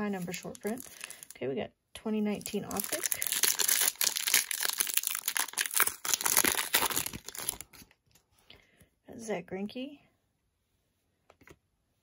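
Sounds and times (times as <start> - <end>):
foil wrapper tearing and crinkling: 0.1 - 1.3, 2.4 - 7.9.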